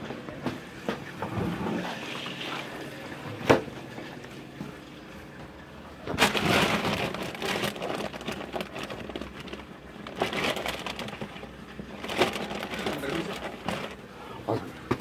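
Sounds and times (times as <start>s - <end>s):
rustling and scraping: 6.1s - 15.0s.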